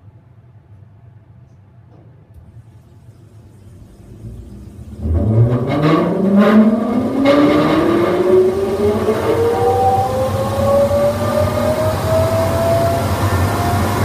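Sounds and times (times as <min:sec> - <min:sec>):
electric motor whine rising: 0:02.9 - 0:14.0.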